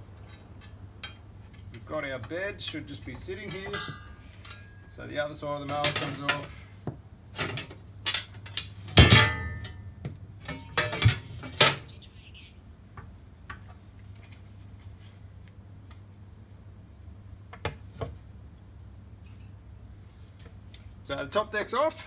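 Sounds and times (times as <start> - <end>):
metal mower parts clanking: 0.2 - 4.8, 5.6 - 6.7, 7.3 - 9.8, 10.4 - 11.8.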